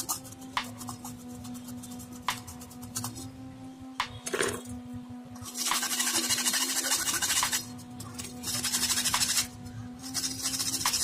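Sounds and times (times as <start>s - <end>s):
knife scraping clay pot: 5.5s - 11.0s.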